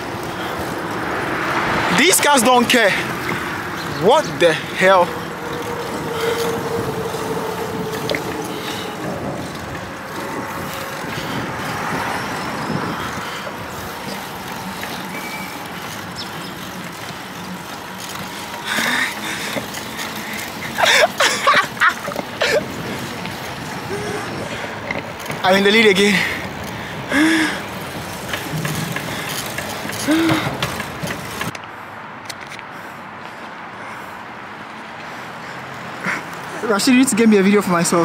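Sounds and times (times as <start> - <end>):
car engine and tyre noise: 0.0 - 38.0
steady drone: 3.1 - 16.5
person speaking: 3.9 - 5.3.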